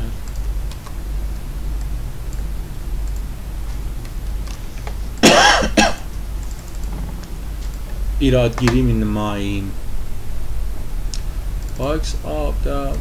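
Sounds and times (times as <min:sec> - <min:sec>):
steady low hum: 0:00.0 - 0:13.0
person coughing: 0:05.2 - 0:06.1.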